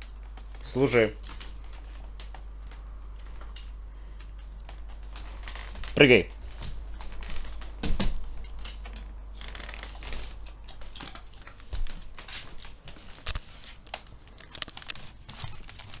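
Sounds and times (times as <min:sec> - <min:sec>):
dog claws clicking on parquet: 0:06.6 - 0:16.0.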